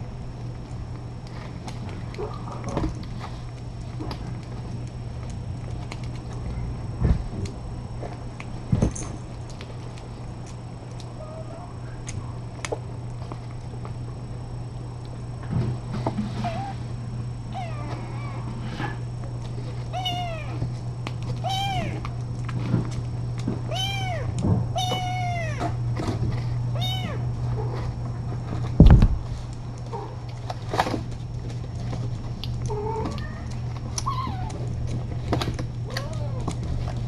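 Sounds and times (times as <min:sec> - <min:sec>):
low hum: 0:00.0 - 0:37.0
kitten meowing: 0:20.0 - 0:20.6, 0:21.4 - 0:22.0, 0:23.7 - 0:25.6, 0:26.8 - 0:27.2.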